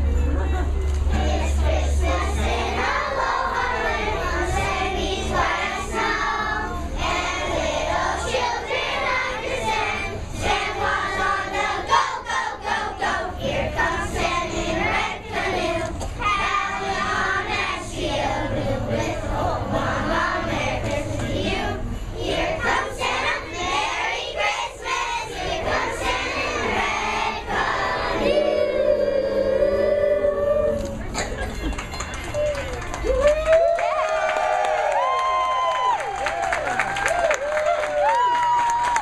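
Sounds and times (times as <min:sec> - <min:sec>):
young children singing in unison: 0:01.1 - 0:30.7.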